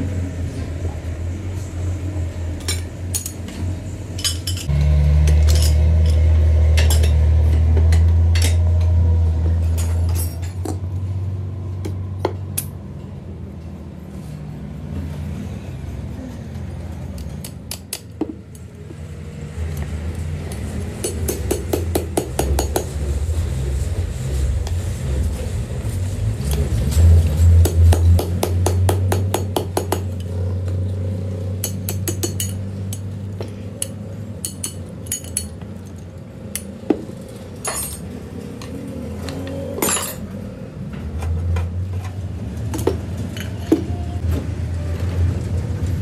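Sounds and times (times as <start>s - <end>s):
steel parts clinking: 4.2s - 4.7s, 9.8s - 10.8s, 33.8s - 36.8s, 37.6s - 38.8s.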